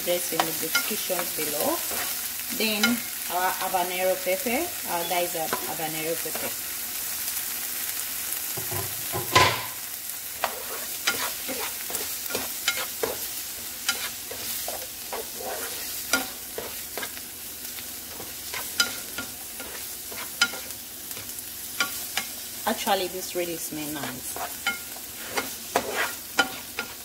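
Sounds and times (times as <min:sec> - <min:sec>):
vegetables sizzling in frying pan: 0:00.0 - 0:27.0
spatula scraping and tapping pan: 0:00.3 - 0:02.2, 0:05.4 - 0:06.6, 0:10.4 - 0:17.2, 0:18.1 - 0:22.4, 0:24.0 - 0:27.0.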